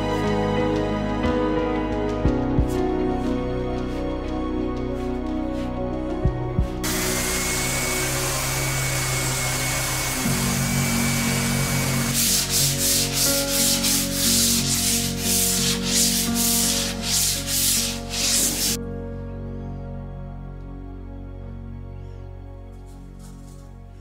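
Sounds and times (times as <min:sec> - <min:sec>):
soft background music: 0:00.0 - 0:24.0
orbital sander running: 0:06.8 - 0:18.8
sandpaper rubbed by hand: 0:11.6 - 0:18.8.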